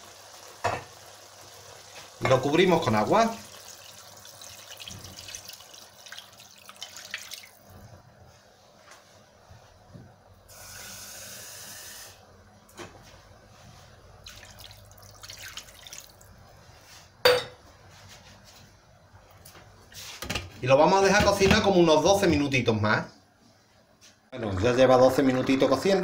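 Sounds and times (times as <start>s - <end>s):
water pouring and splashing: 1.8s - 7.8s, 14.2s - 16.3s.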